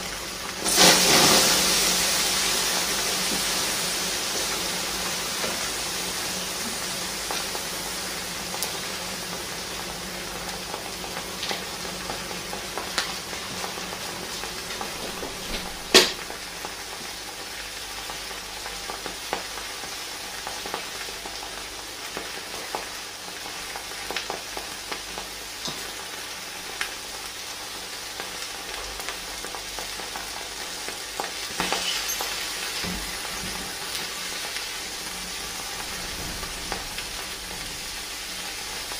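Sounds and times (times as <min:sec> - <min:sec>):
lava hissing and sizzling: 0:00.0 - 0:17.6, 0:28.2 - 0:38.9.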